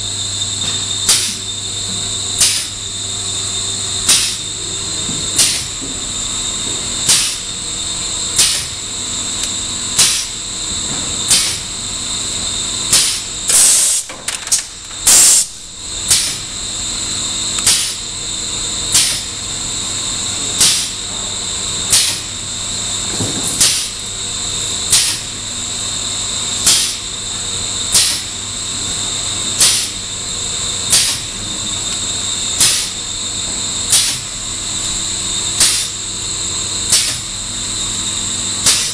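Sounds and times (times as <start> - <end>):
machine whine and hum: 0.0 - 38.9
short hissing bursts: 12.9 - 14.0, 15.1 - 15.5.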